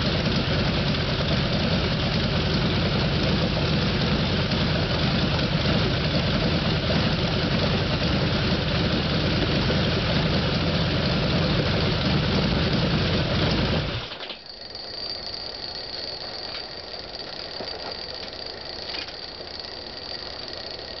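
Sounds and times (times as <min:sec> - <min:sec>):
aircraft engine running: 0:00.0 - 0:14.1
faint high whine: 0:00.0 - 0:21.0.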